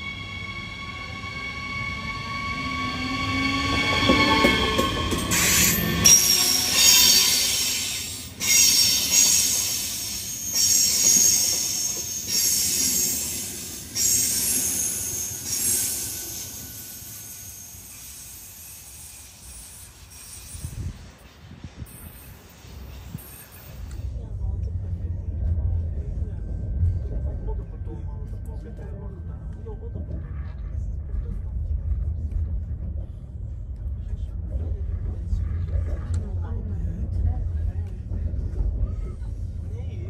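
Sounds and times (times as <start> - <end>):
train wheel squeal: 0.0 - 21.3, 21.9 - 24.1.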